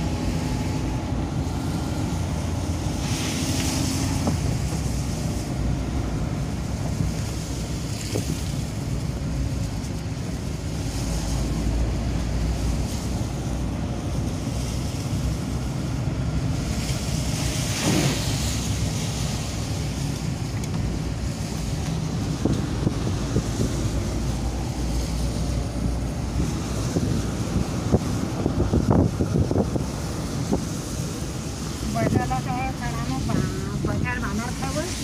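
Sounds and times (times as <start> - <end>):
van engine and road rumble: 0.0 - 35.0
wind noise on microphone: 0.0 - 35.0
brief hissing: 17.7 - 18.6.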